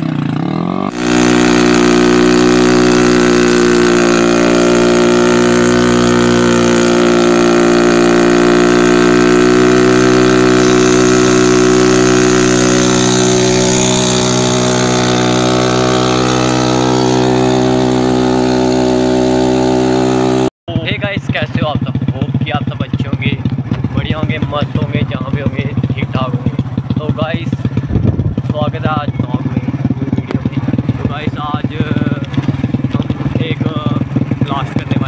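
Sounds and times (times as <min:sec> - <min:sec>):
tyre spinning on road: 0:00.0 - 0:20.5
motorcycle engine high revs: 0:00.0 - 0:35.0.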